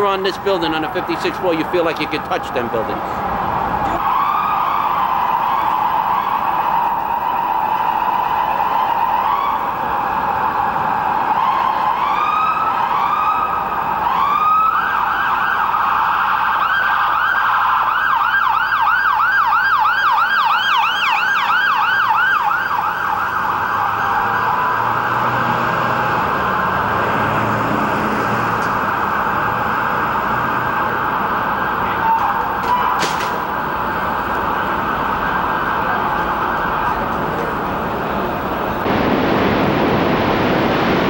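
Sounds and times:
sirens wailing: 0:00.0 - 0:41.0
siren fast yelp: 0:30.6 - 0:36.8.

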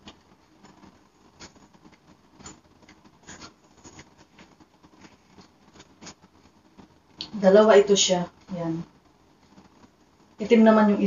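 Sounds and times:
clothes rustling: 0:00.0 - 0:07.1.

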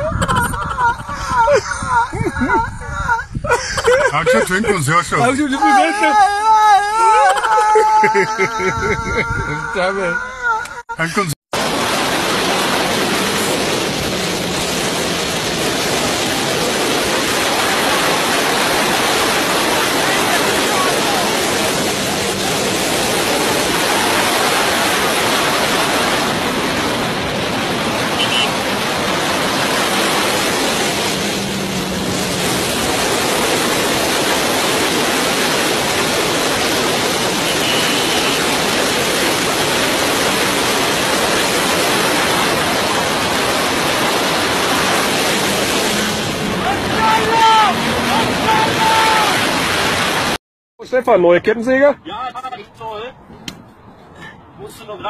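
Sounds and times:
wind blowing over microphone: 0:00.0 - 0:04.2, 0:08.3 - 0:10.3.

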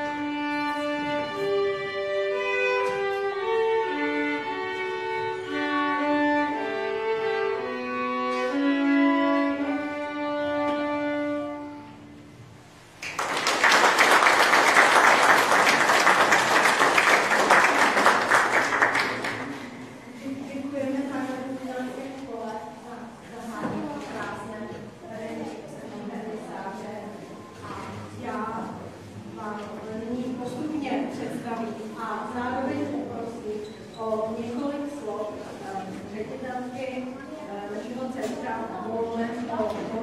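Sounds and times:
violins playing: 0:00.0 - 0:12.4
audience applause: 0:13.0 - 0:19.6.

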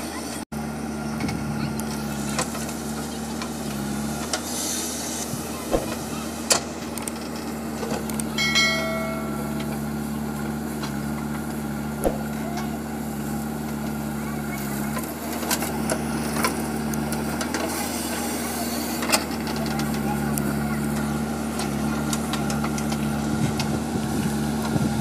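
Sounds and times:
diesel engine running: 0:00.0 - 0:25.0
short electronic chime: 0:08.4 - 0:10.0.

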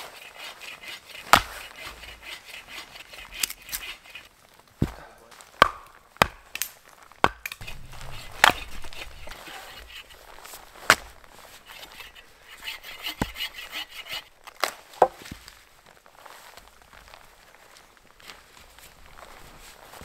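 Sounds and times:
wood being chopped: 0:01.2 - 0:02.0, 0:04.8 - 0:11.2, 0:14.4 - 0:15.5.

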